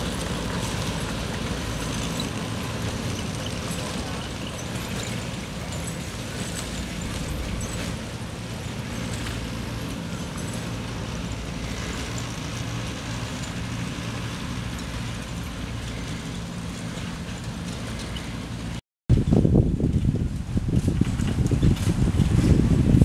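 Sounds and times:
engine running steadily: 0.0 - 23.0.

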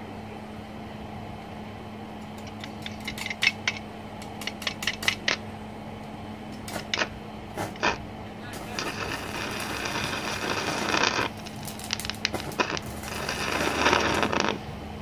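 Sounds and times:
welder low hum: 0.0 - 15.0
welding arc clicks and crackles: 2.2 - 5.4, 6.5 - 14.6.

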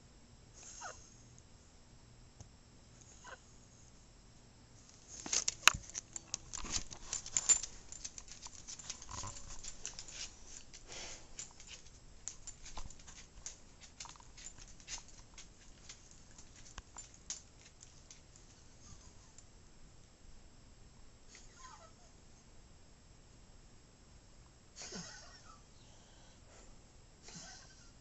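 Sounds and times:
dog nails clicking on wood floor: 5.1 - 18.6.

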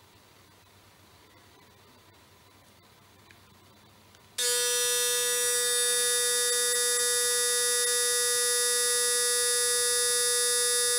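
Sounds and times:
electric shaver buzzing: 4.4 - 10.9.

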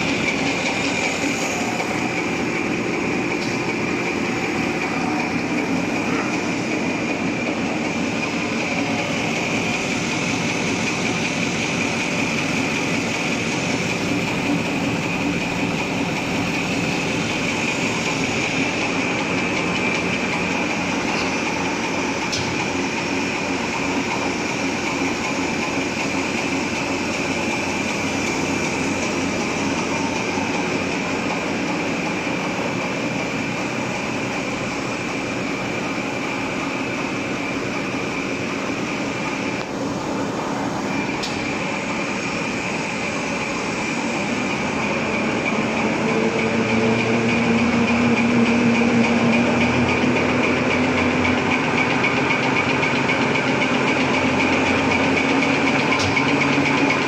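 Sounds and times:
steady high tone: 0.0 - 22.2.

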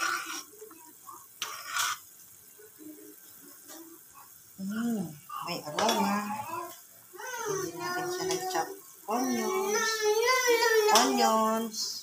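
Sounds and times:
spoon scraping swish: 0.0 - 0.6, 1.4 - 2.1
metal spoon stirring in pot: 0.0 - 4.3, 5.3 - 6.9, 7.6 - 10.1, 10.8 - 11.5.

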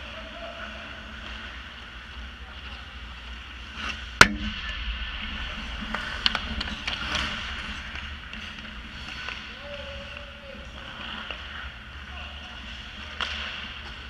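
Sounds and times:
skates scraping on ice: 0.0 - 4.2, 5.4 - 14.0
hockey sticks and puck clacking: 5.8 - 14.0
puck shot crack: 13.1 - 14.0.

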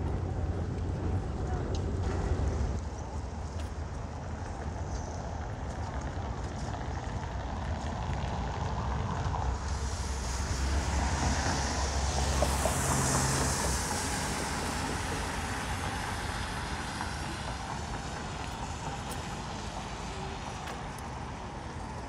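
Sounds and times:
background traffic: 0.0 - 22.0
vehicle passing on wet road: 7.2 - 22.0.

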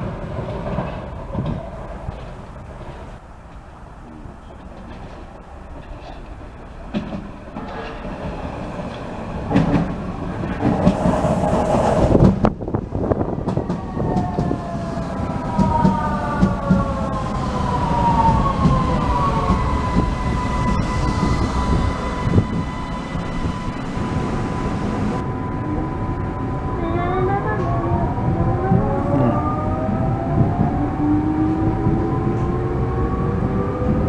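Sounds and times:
train wheels rumbling over rails: 0.0 - 25.2.

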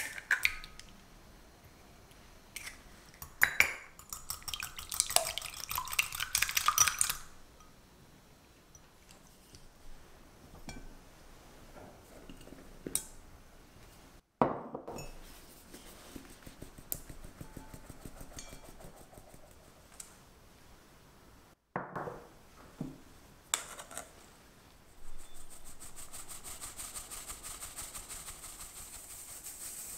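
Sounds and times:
glass bowl clinking: 14.9 - 15.3
metal sieve tapped and shaken: 16.6 - 19.4.

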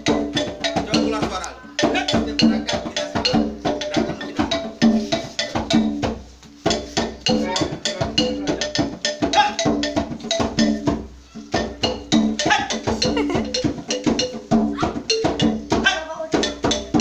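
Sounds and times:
pitched wooden strikes: 0.0 - 17.0.

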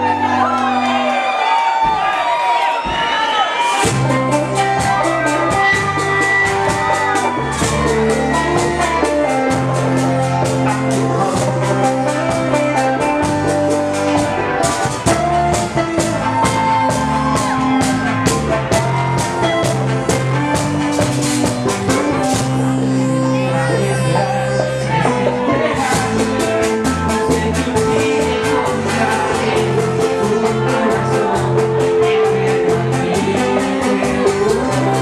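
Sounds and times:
live band bachata music: 3.6 - 35.0
person singing: 3.8 - 21.0, 21.6 - 35.0
quick percussion beat: 3.8 - 22.5.

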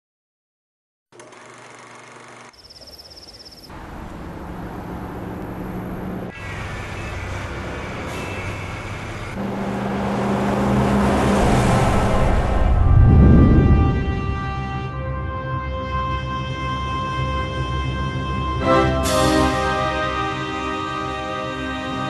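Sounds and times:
vehicle engine humming: 2.5 - 15.3
rushing road noise: 3.7 - 22.0.

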